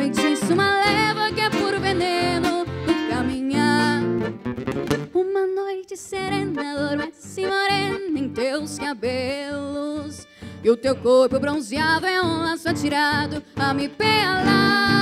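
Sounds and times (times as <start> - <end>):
acoustic guitar melody: 0.0 - 15.0
band accompaniment: 4.2 - 5.1.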